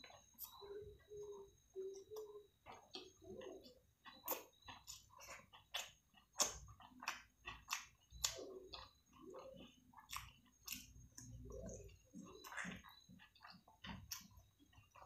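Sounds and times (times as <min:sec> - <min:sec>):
chewing food with wet mouth clicks: 0:00.0 - 0:15.0.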